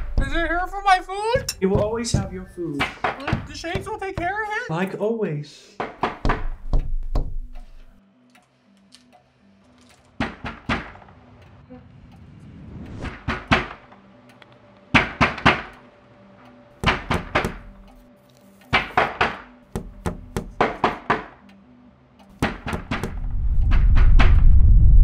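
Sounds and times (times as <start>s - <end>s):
sharp knocking: 0.0s - 4.5s, 16.8s - 17.8s, 18.7s - 21.4s, 22.4s - 23.2s.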